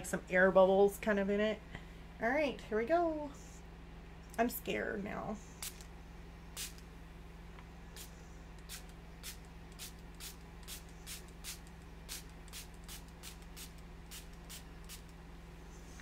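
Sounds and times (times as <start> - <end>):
steady low hum: 0.0 - 16.0
spray bottle hissing: 6.6 - 6.8, 8.0 - 15.1.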